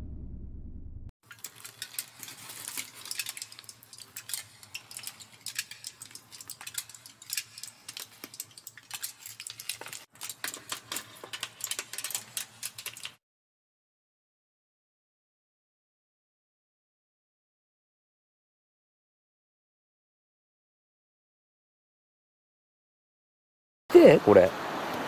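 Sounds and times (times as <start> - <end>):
dense clicking and clattering: 1.3 - 13.2.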